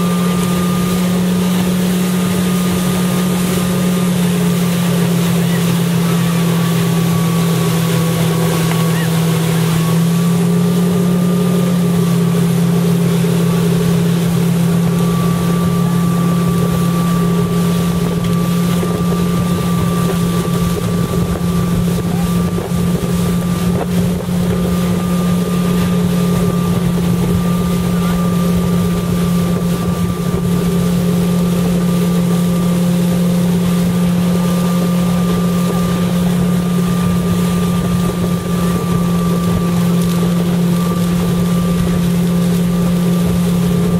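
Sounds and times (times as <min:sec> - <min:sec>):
motorboat engine humming: 0:00.0 - 0:43.9
rush of boat wake: 0:00.0 - 0:43.9
wind buffeting microphone: 0:13.7 - 0:43.9.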